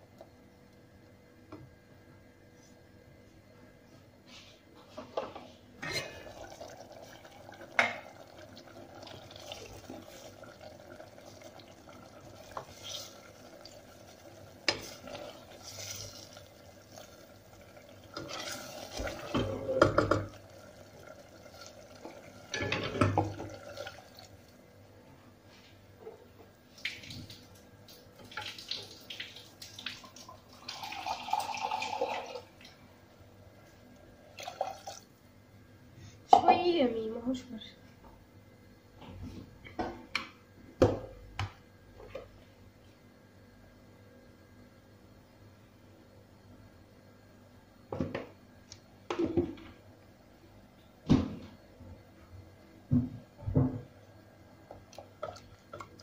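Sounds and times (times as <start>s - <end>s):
water running: 5.8s - 24.6s, 26.7s - 32.8s, 34.3s - 35.1s.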